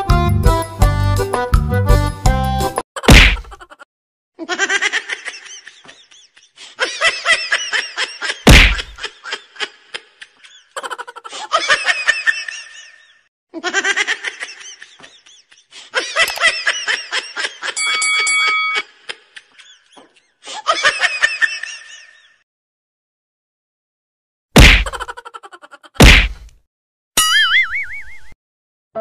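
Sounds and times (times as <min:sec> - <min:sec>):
sharp whack: 0:03.1 - 0:03.5, 0:08.5 - 0:09.0, 0:24.6 - 0:25.0, 0:26.0 - 0:26.5
laughter: 0:03.4 - 0:03.8, 0:04.4 - 0:22.4, 0:24.9 - 0:26.0.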